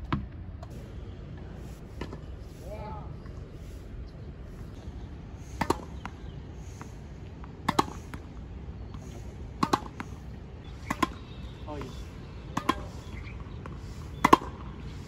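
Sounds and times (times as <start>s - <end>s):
tennis ball knocks: 5.5s - 6.2s, 7.4s - 8.2s, 8.9s - 10.2s, 10.8s - 11.2s, 11.8s - 13.0s, 14.2s - 14.6s.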